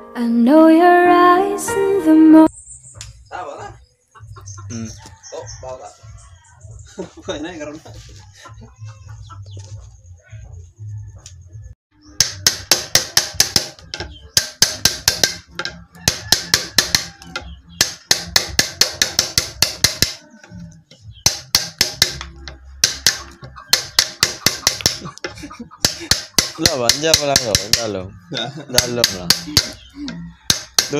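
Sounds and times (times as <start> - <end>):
chisel tapping into wood: 12.2 - 20.2, 21.2 - 27.9, 28.7 - 30.9.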